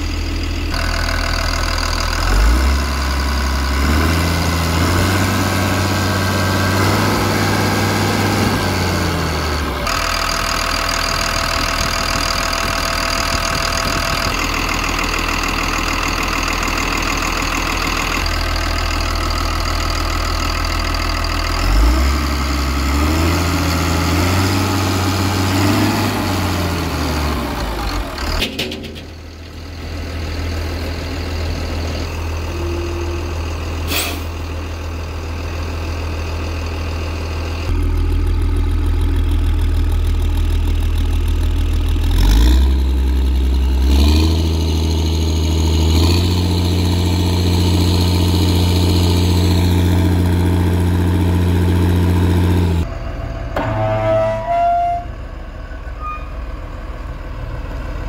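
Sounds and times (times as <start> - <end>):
diesel engine idling and revving: 0.0 - 58.0.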